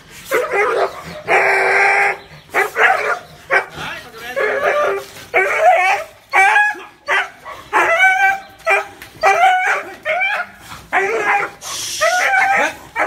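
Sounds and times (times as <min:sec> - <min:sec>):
dog barking: 0:02.5 - 0:03.8, 0:04.6 - 0:08.0.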